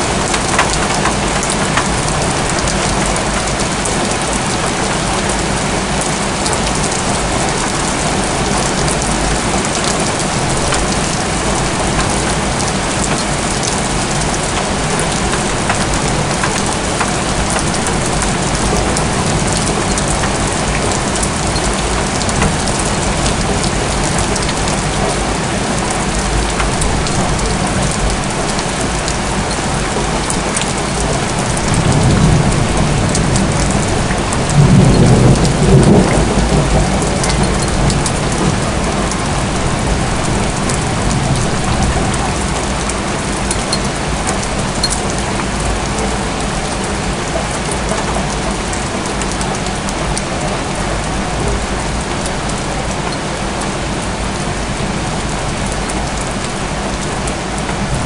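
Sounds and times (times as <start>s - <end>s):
steady rain: 0.0s - 58.0s
rolling thunder: 6.6s - 25.4s, 31.0s - 43.4s.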